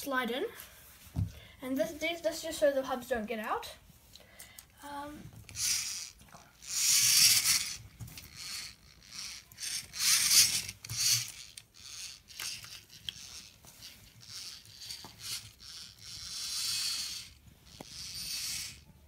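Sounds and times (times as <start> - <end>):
plastic parts rubbing and scraping: 5.4 - 18.9.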